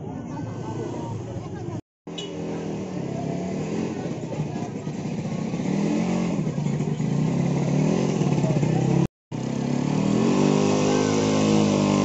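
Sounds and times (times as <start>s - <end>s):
vehicle engine revving: 2.1s - 12.0s.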